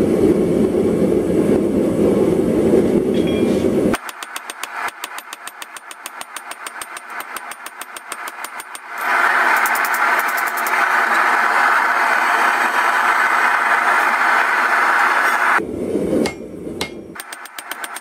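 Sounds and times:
gas forge burner rushing: 0.0s - 18.0s
hammer striking steel on anvil: 4.0s - 10.7s, 16.2s - 18.0s.

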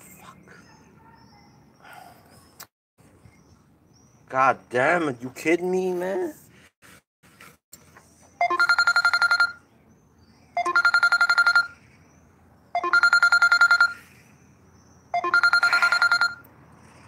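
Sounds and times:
phone ringtone trilling: 8.4s - 9.6s, 10.6s - 11.8s, 12.8s - 14.0s, 15.1s - 16.5s.

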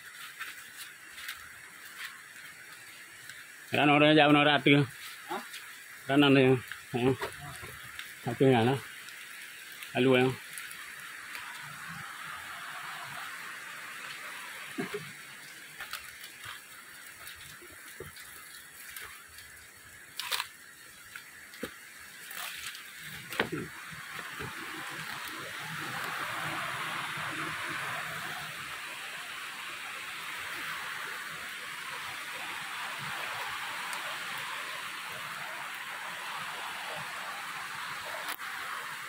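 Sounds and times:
footsteps on leaf litter: 0.0s - 2.8s
running water rushing: 0.0s - 39.0s.

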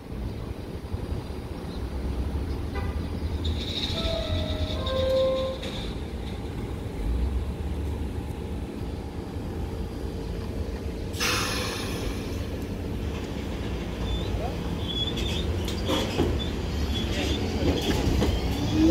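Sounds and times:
subway train rumble and hum: 0.0s - 18.9s
air brakes hissing: 11.1s - 12.5s.

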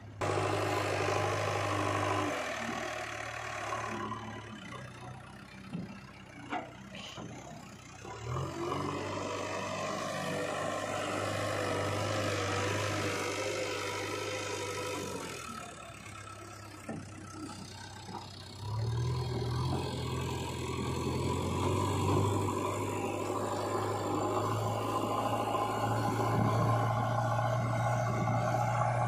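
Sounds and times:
diesel engine revving under load: 0.0s - 29.0s.

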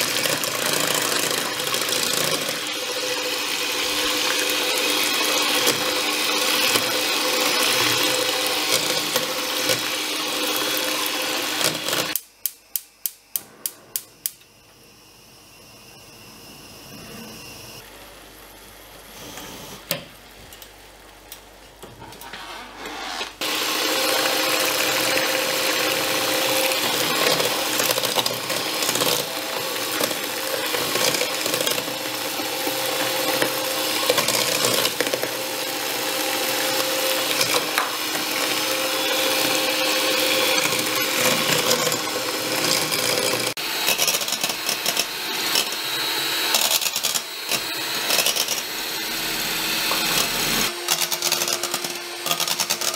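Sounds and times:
electric hand mixer whipping batter: 0.0s - 12.2s, 23.4s - 52.9s.

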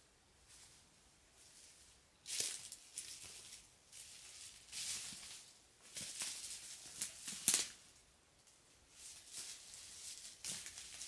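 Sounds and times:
footsteps crunching on pine needles: 1.4s - 7.8s.

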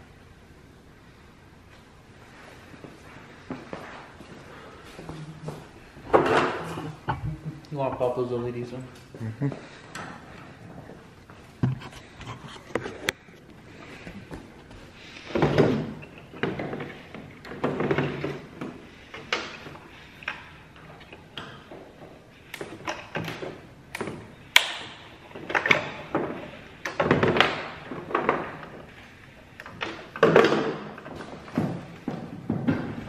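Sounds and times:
plastic parts clunking and clicking: 6.1s - 7.4s, 15.2s - 28.9s, 29.5s - 33.0s.

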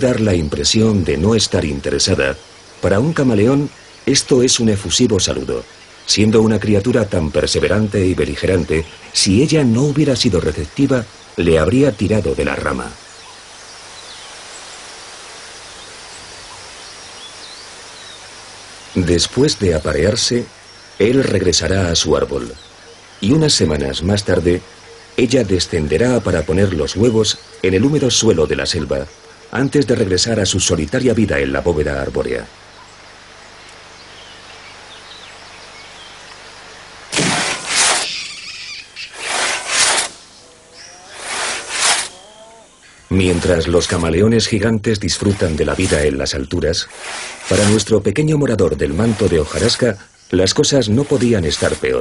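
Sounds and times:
faint bird chirps: 0.0s - 52.0s
steady forest hiss: 0.0s - 52.0s
hand saw rasping through log: 37.2s - 38.1s, 39.1s - 40.2s, 41.1s - 42.2s, 46.9s - 47.9s, 49.0s - 49.8s.

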